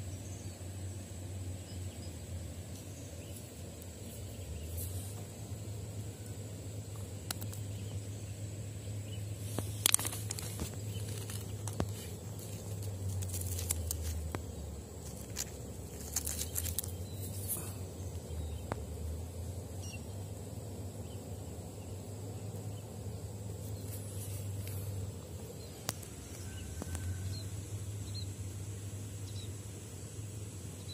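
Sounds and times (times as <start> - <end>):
pebbles clicking and knocking: 9.5 - 17.6.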